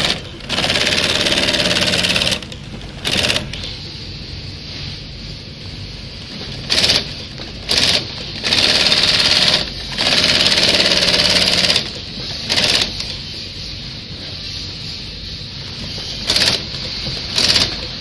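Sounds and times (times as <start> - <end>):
sewing machine needle strokes: 0.0 - 3.6, 6.6 - 13.1, 16.1 - 17.9
steady machine hum: 0.0 - 18.0.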